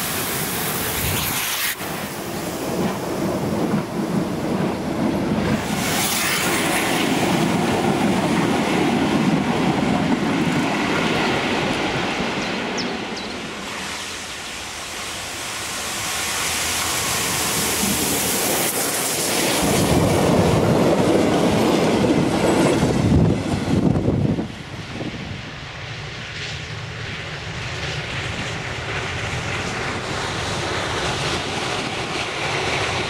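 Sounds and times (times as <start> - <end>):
steam train running past: 0.0 - 33.0.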